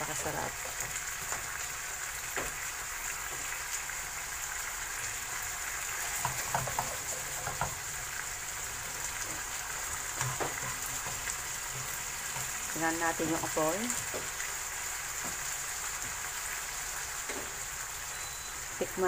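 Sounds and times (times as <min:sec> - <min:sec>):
chicken sizzling in frying pan: 0:00.0 - 0:19.0
utensil clicking against pan: 0:06.0 - 0:07.8, 0:10.1 - 0:12.7.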